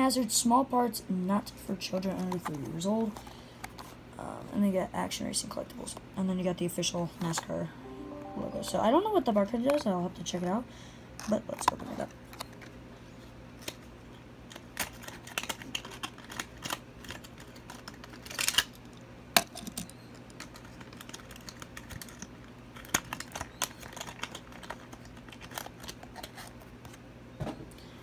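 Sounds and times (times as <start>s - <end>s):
plastic and cardboard rustling: 22.8s - 26.9s.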